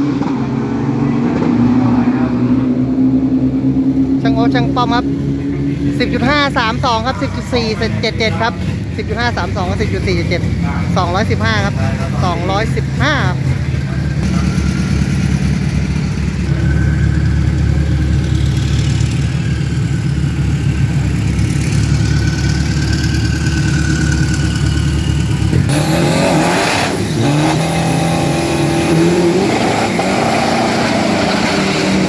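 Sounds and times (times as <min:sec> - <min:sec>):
engines revving hard: 0:00.0 - 0:32.0
diesel engines idling: 0:00.4 - 0:26.3.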